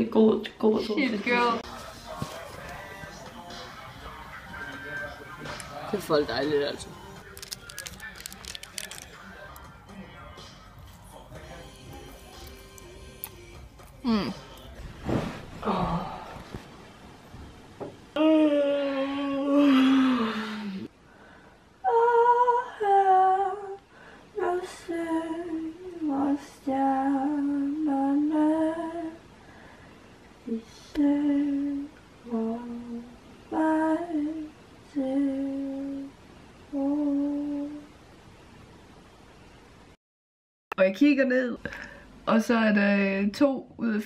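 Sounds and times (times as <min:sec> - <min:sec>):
woman humming a slow tune: 0:12.8 - 0:14.7, 0:18.2 - 0:20.8, 0:36.7 - 0:37.9.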